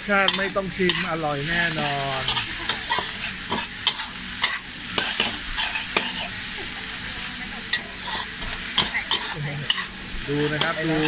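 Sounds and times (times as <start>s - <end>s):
food sizzling: 0.0s - 11.0s
metal spatula clanking on wok: 0.2s - 1.1s.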